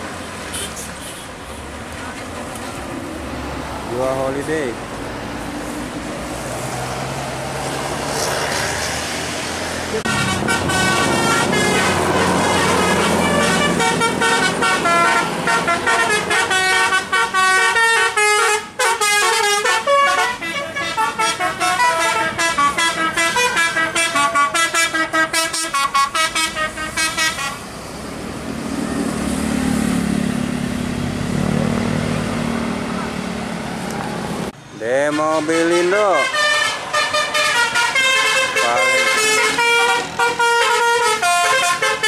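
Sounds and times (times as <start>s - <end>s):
bus engine running: 0.0s - 34.8s, 36.3s - 42.0s
bus horn playing a tune: 0.5s - 1.4s, 10.0s - 27.6s, 35.1s - 42.0s.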